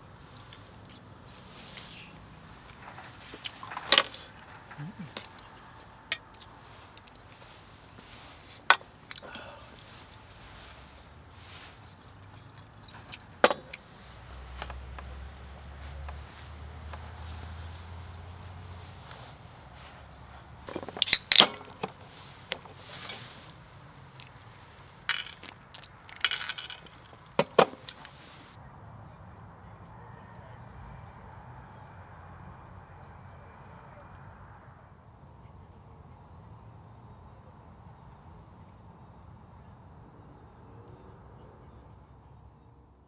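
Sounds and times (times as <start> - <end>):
nuts clinking in metal bowl: 25.0 - 27.4.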